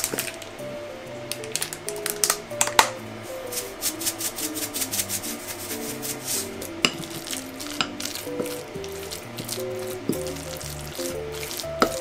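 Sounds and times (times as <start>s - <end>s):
gentle background music: 0.0s - 12.0s
shaker shaken over glass bowl: 3.4s - 12.0s.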